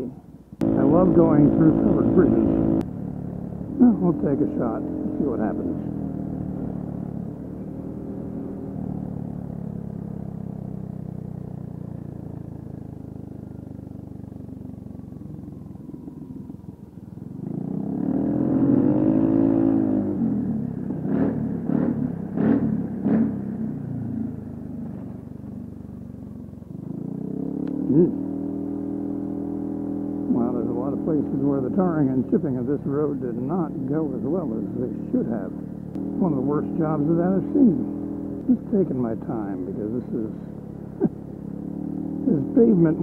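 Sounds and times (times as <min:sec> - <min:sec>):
scooter engine revving: 0:00.6 - 0:24.9, 0:33.4 - 0:43.0.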